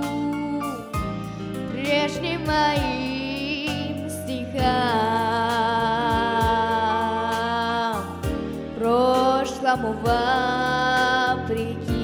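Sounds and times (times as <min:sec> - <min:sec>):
pop backing track: 0:00.0 - 0:12.0.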